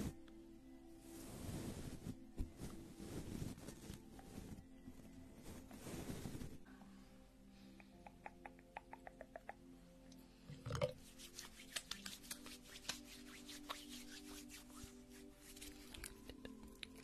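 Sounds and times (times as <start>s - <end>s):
soft background music: 0.0s - 17.0s
hands tapping and crackling: 7.8s - 9.7s, 10.7s - 14.8s, 15.4s - 17.0s.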